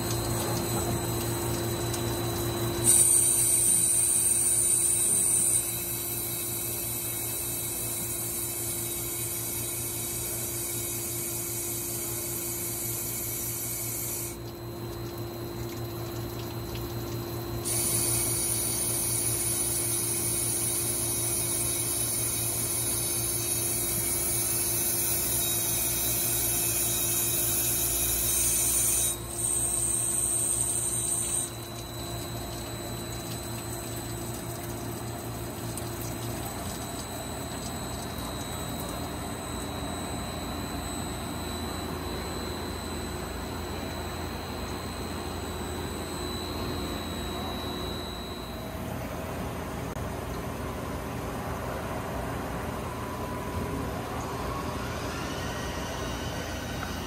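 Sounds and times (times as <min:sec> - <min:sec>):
coolant splashing: 0:00.0 - 0:41.2.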